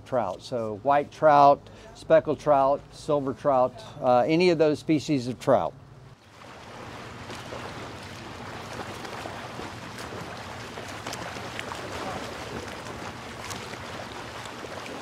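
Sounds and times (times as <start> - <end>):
wind: 0.0 - 15.0
surf: 6.2 - 15.0.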